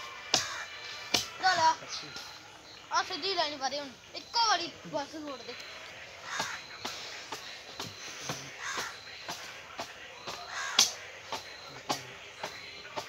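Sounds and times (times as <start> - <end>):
crows cawing: 0.0 - 2.4, 6.2 - 7.1, 7.9 - 9.1, 10.3 - 11.0.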